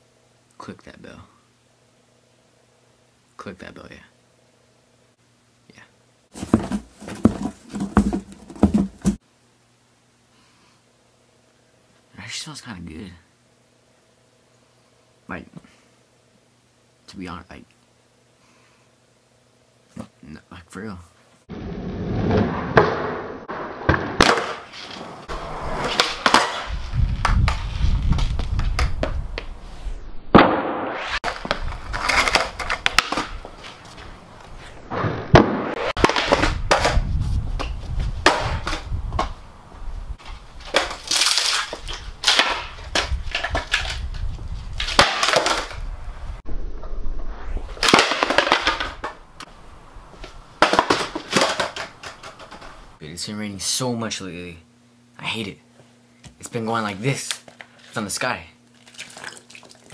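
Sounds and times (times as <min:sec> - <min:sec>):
skateboard wheels rolling on concrete: 0:06.3 - 0:09.2, 0:21.5 - 0:29.9, 0:31.0 - 0:46.4, 0:47.5 - 0:53.0
skateboard deck pops and clatters: 0:22.2 - 0:25.0, 0:25.8 - 0:29.5, 0:31.2 - 0:33.4, 0:35.3 - 0:37.0, 0:37.6 - 0:39.4, 0:40.6 - 0:44.0, 0:44.8 - 0:45.8, 0:47.8 - 0:49.2, 0:50.6 - 0:52.8.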